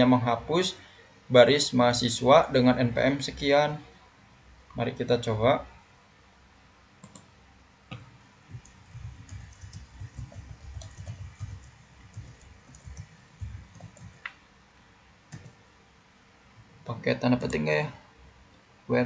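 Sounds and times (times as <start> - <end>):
typing on a computer keyboard: 7.0 - 7.3, 7.9 - 14.4, 15.3 - 15.6.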